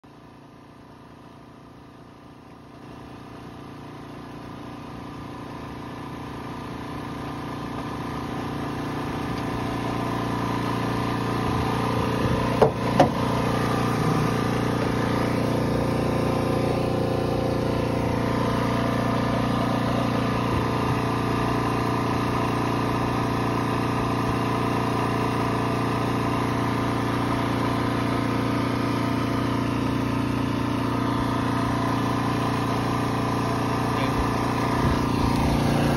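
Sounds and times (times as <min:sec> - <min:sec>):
steady engine hum: 0:00.1 - 0:35.9
sharp knocks: 0:12.6 - 0:13.2.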